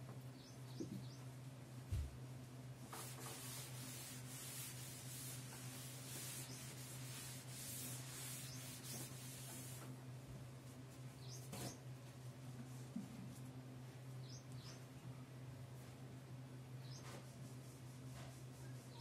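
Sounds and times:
duster wiping chalkboard: 0:02.8 - 0:10.0, 0:17.0 - 0:19.0.

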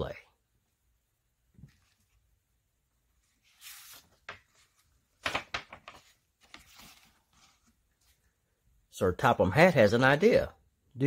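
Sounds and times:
book page turning: 0:03.2 - 0:08.2
paper rustles and taps: 0:03.7 - 0:07.7.

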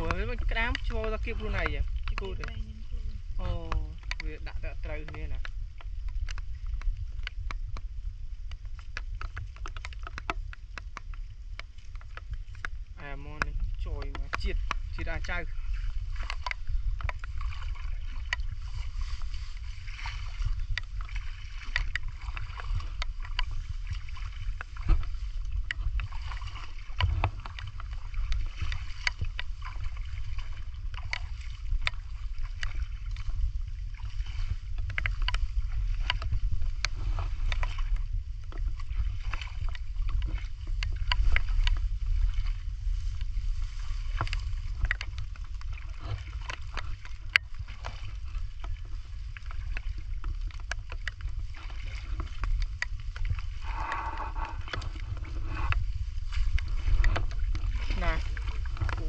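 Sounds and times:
low rumble: 0:00.0 - 0:59.0
water splashing while wading: 0:00.0 - 0:59.0.

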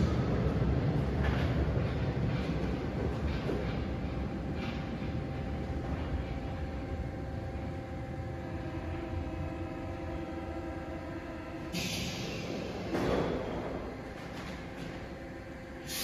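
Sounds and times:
humming tones: 0:00.0 - 0:16.0
train equipment rumbling: 0:00.0 - 0:16.0
air release burst: 0:11.7 - 0:12.4, 0:15.8 - 0:16.0
compressed air hissing: 0:11.7 - 0:12.7, 0:15.8 - 0:16.0.

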